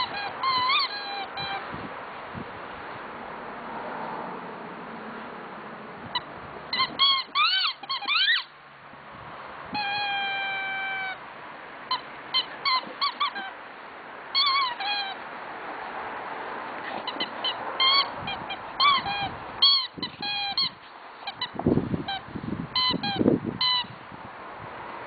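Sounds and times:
rubber chicken toy squeaking: 0.0s - 1.6s, 6.1s - 8.5s, 9.7s - 11.2s, 11.9s - 13.6s, 14.3s - 15.2s, 16.9s - 23.9s.

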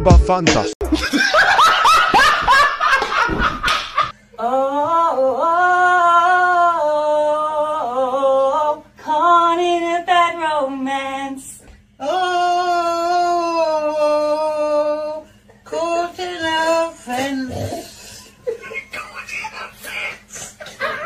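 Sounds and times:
woman singing long notes: 4.4s - 11.4s, 12.0s - 17.8s.

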